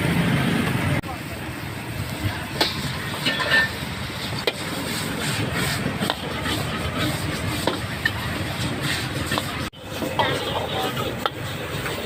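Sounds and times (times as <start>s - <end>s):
gas burner rush: 0.0s - 12.0s
wok sizzling: 0.0s - 12.0s
metal spatula clanking on wok: 2.6s - 3.8s.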